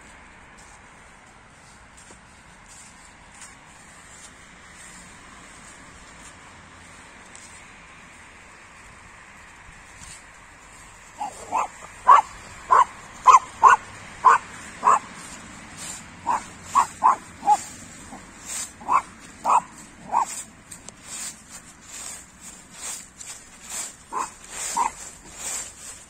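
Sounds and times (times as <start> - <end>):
footsteps in dry leaves: 0.0 - 26.0
dog barking: 11.2 - 15.1, 16.2 - 18.2, 18.8 - 20.4, 24.1 - 25.0.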